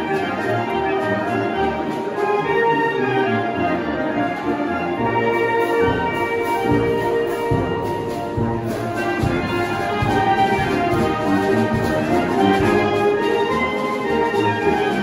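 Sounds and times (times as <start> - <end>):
brass band playing dance music: 0.0 - 15.0.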